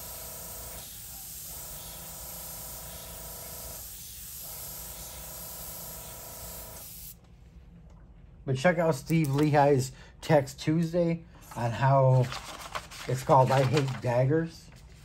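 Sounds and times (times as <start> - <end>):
airbrush spraying hiss: 0.0 - 7.2.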